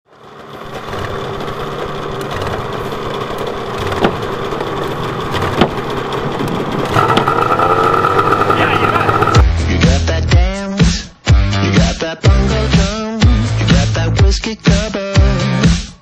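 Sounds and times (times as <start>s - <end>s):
snowmobile engine idling: 0.2s - 9.4s.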